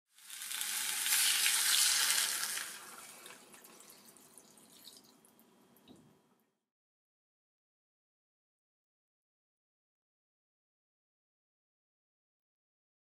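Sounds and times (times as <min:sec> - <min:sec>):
water pouring into a metal saucepan: 0:00.2 - 0:05.2.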